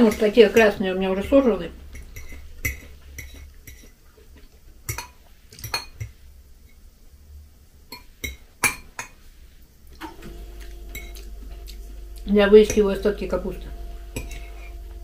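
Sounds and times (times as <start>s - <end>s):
fork clinking on glass plate: 14.2s - 14.7s.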